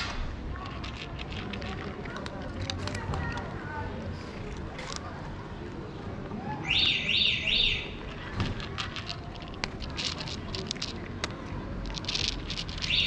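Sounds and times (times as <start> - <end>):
cat chewing food: 0.7 - 5.2.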